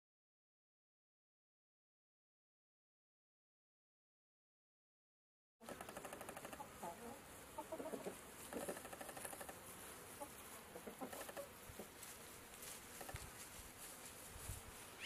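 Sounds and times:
chickens clucking: 6.0 - 9.5, 10.1 - 12.1.

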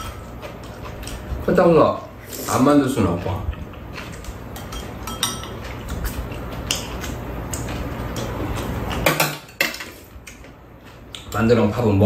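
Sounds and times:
utensils clinking against bowls: 0.0 - 1.2, 2.5 - 10.0
steady low hum: 0.0 - 12.0.

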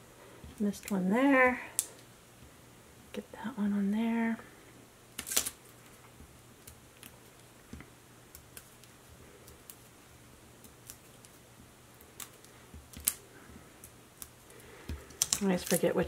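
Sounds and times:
paper clicks and crinkles: 14.9 - 16.0.

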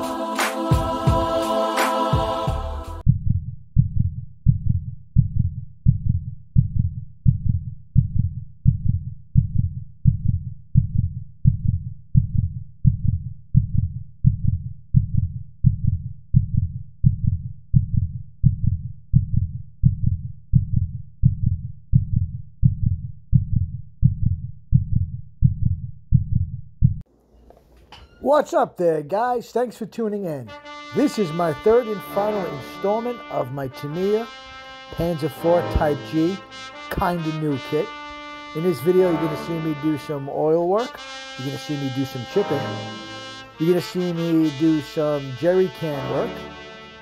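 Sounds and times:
low heartbeat-like thumps: 2.2 - 27.0.

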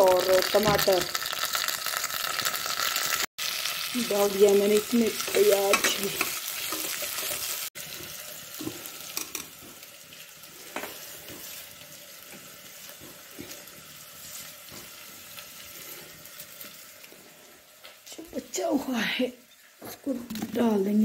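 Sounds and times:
onions sizzling in oil: 0.0 - 21.0.

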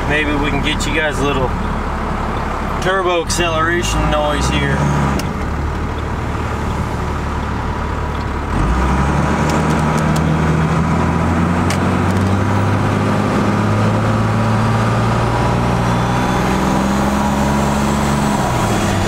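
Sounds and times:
diesel engine accelerating: 0.0 - 19.0
turbo whistling: 15.6 - 17.4.

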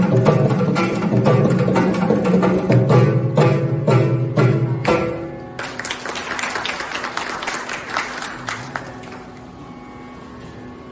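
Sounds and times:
drum strokes: 0.0 - 5.5
plucked veena notes: 0.0 - 5.7
audience clapping: 5.6 - 9.5.

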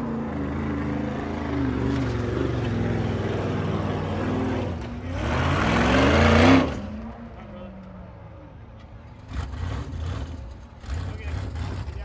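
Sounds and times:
race car engine revving: 0.0 - 7.1.

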